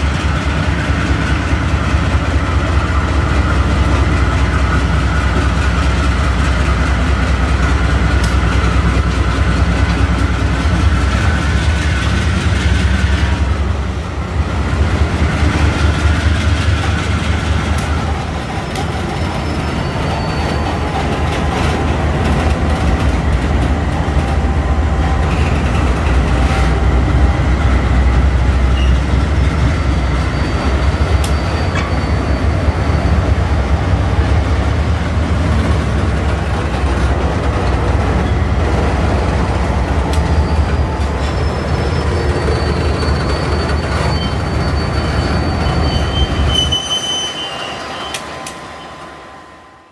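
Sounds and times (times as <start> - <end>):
wagon wheels rumbling on rails: 14.6 - 32.2
high-pitched wheel squeals: 18.6 - 20.9, 28.7 - 34.0, 40.2 - 49.8.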